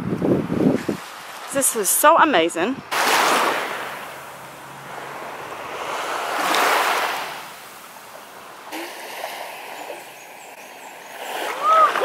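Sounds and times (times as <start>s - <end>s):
small waves washing on sand: 0.4s - 12.0s.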